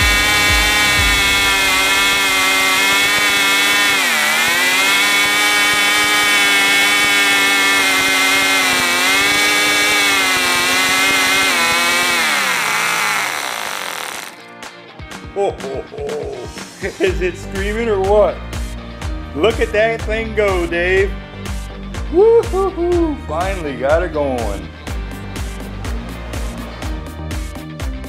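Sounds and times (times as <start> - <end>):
model glow engines screaming: 0.0 - 14.4.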